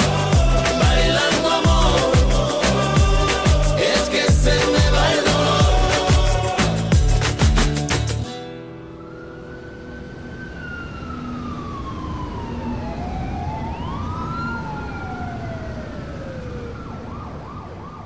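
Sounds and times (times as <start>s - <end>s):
emergency sirens wailing: 0.0s - 6.6s, 8.6s - 18.0s.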